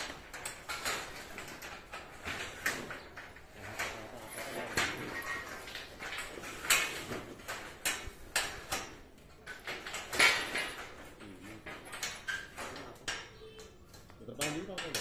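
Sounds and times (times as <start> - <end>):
metal pipes clanking: 0.0 - 15.0.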